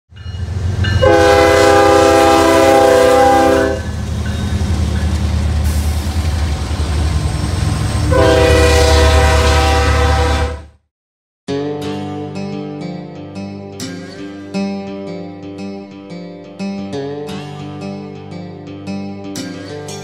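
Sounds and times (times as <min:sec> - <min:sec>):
train rumble: 0:00.1 - 0:10.6
locomotive air horn: 0:01.0 - 0:03.9, 0:07.8 - 0:10.8.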